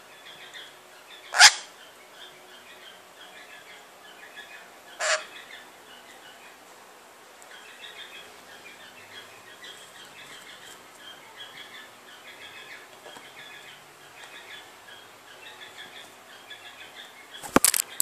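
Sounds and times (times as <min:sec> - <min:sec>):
parrot twittering: 0:01.3 - 0:01.7, 0:05.0 - 0:05.4.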